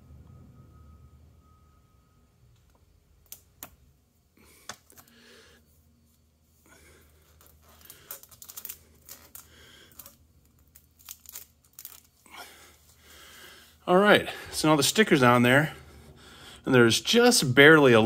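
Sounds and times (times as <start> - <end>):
packing tape crackling: 7.1 - 12.7.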